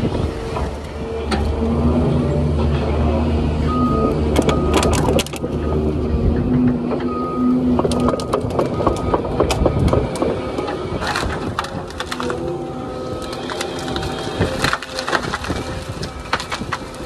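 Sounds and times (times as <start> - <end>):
excavator engine drone: 0.0 - 17.0
wood cracking and snapping: 4.3 - 5.6, 7.7 - 17.0.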